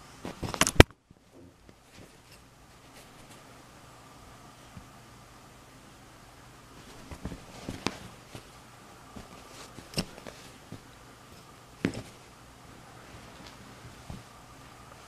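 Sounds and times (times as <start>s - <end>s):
kitten pawing pencil on carpet: 1.7s - 3.6s, 6.7s - 12.4s.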